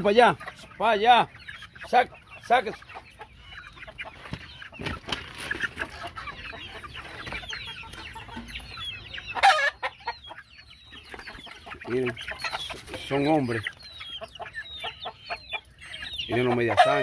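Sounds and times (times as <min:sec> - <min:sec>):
chickens clucking and chirping: 0:00.0 - 0:17.0
loud chicken call: 0:09.1 - 0:10.5, 0:14.0 - 0:17.0.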